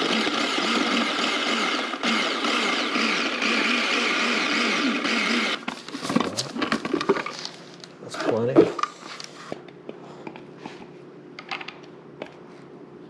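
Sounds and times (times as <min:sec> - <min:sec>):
blender whirring: 0:00.0 - 0:05.7.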